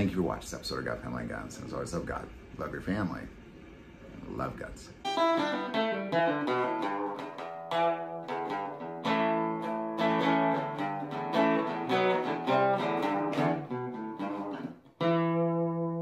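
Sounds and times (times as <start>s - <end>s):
guitar chord ringing: 5.0s - 16.0s
plucked guitar notes: 5.0s - 16.0s.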